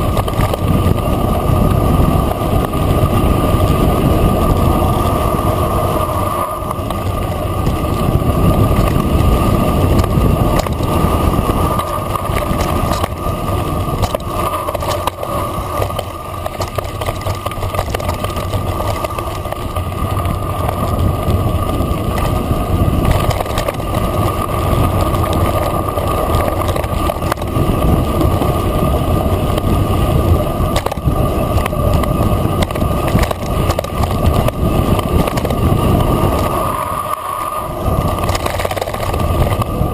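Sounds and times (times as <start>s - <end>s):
bike clicks and rattles: 0.0s - 39.9s
tyres rolling over gravel: 0.0s - 39.9s
wind buffeting microphone: 0.0s - 39.9s.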